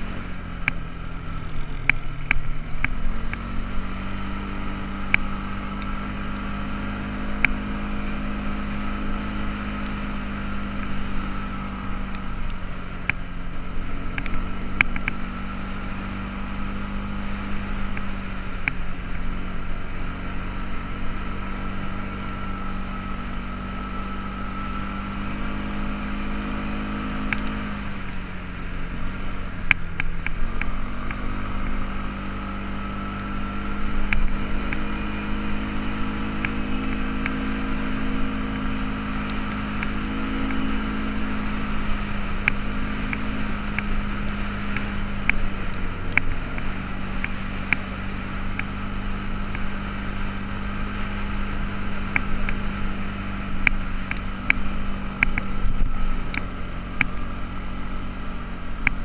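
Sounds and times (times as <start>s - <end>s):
atv engine running: 0.0s - 59.0s
sharp clicks: 1.5s - 3.5s, 27.2s - 28.2s, 53.6s - 57.3s.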